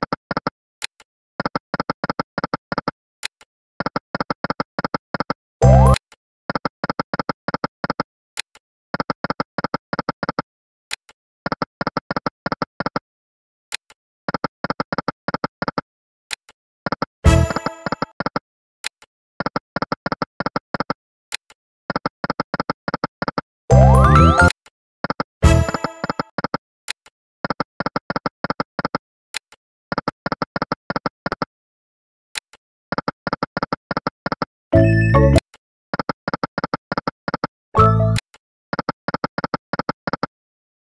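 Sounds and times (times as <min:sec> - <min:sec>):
win jingle: 0:23.8 - 0:24.5.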